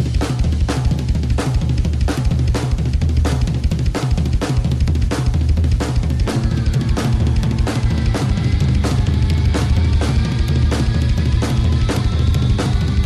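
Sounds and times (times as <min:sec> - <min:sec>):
drum-kit beat with heavy bass: 0:00.0 - 0:13.0.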